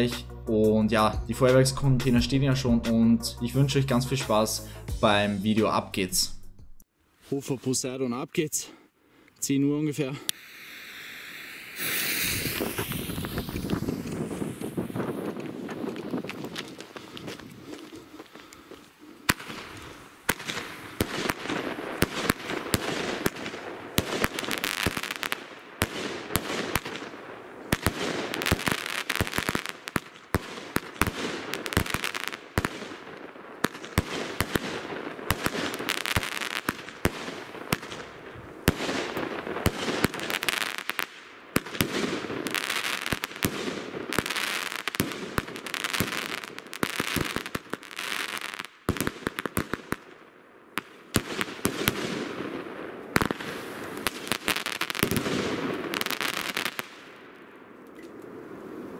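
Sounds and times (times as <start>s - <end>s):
firework shells launching and bursting: 10.3s - 17.5s, 19.3s - 50.0s
hiss of burning stars: 10.3s - 21.0s.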